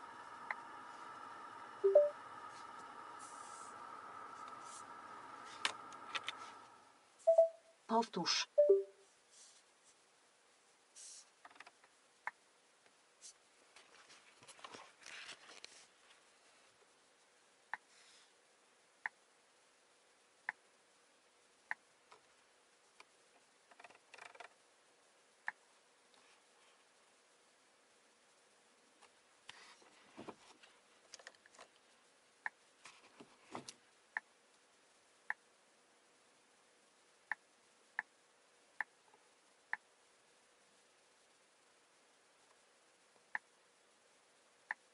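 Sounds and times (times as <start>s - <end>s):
short electronic beeps: 1.8s - 2.2s, 7.3s - 7.7s, 8.6s - 9.0s
faint rustling of hand: 9.1s - 10.0s.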